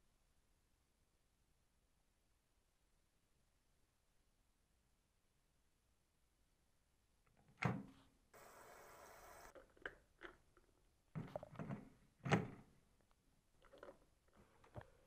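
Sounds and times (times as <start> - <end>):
even hiss: 8.4 - 9.5.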